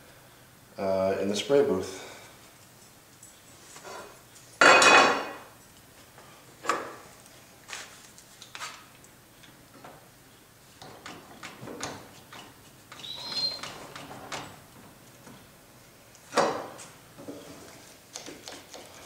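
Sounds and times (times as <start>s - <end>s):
brief squeak: 13.0s - 13.7s.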